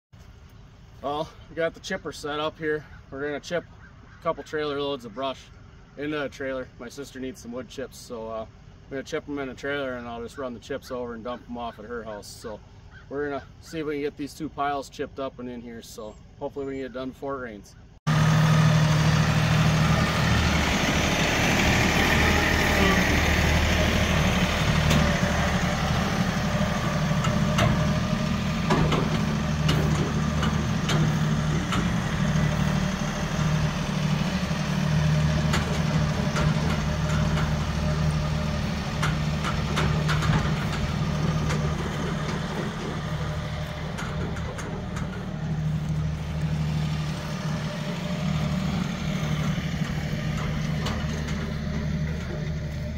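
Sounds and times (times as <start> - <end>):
tractor diesel engine running: 18.0 - 52.9.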